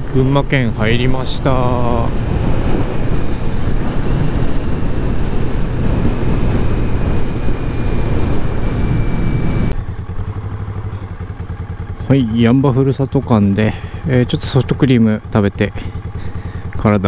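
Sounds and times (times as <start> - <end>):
wind rushing over microphone: 0.0 - 9.8
motorcycle engine running: 0.0 - 17.0.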